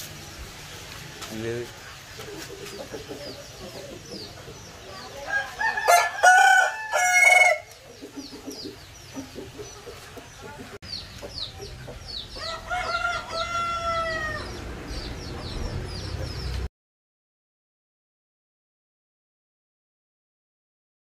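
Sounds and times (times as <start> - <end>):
roosters crowing: 4.9 - 8.2, 12.2 - 16.4.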